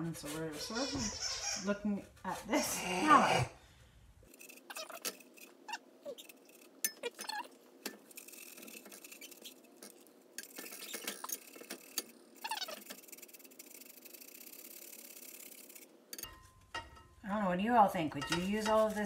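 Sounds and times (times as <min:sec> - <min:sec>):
grater clinking against pan: 0:18.2 - 0:19.0.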